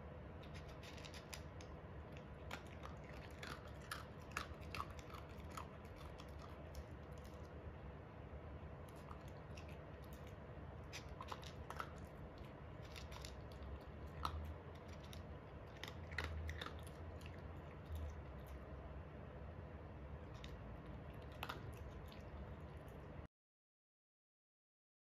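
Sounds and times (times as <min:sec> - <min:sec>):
dog crunching dry kibble: 0:00.4 - 0:07.6, 0:08.8 - 0:18.7, 0:20.2 - 0:23.1.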